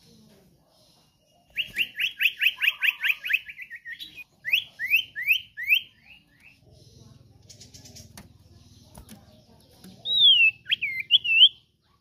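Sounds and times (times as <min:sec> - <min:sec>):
bird singing whistled notes: 0:01.4 - 0:06.6, 0:10.0 - 0:11.6.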